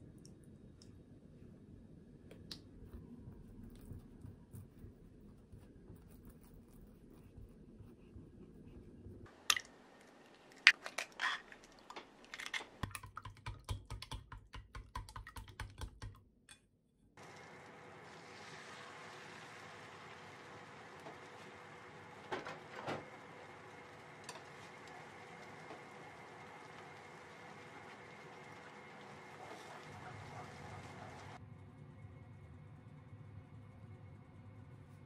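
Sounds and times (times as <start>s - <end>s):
chopsticks beating eggs in a bowl: 10.1s - 16.2s
egg sizzling in a frying pan: 17.2s - 31.2s.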